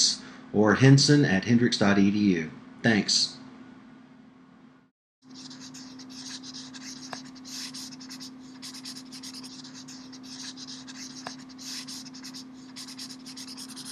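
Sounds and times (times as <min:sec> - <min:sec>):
marker scratching on paper: 0:05.3 - 0:13.9.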